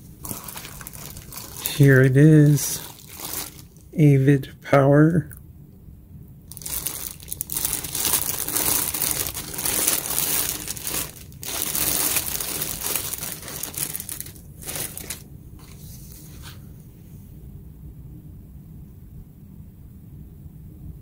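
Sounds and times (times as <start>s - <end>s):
plastic bag crinkling: 0.0s - 4.0s, 6.5s - 15.7s.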